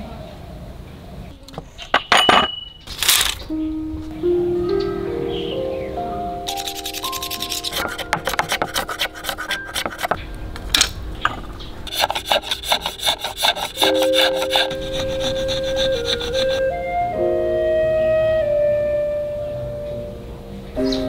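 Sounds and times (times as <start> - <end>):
blade shaving bamboo: 6.5 - 10.2, 11.9 - 16.8.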